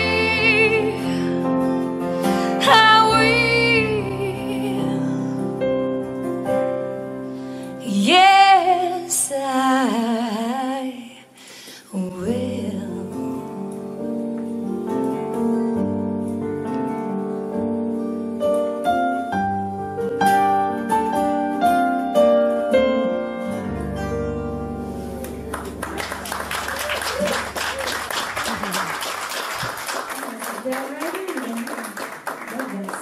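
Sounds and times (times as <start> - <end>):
woman singing a slow ballad: 0.0 - 5.5, 7.8 - 14.0
acoustic guitar: 0.0 - 29.8.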